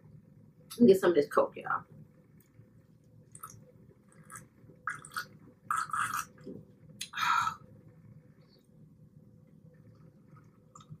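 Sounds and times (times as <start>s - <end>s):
gulping and swallowing: 3.3s - 7.2s
breathy sound: 7.0s - 7.8s.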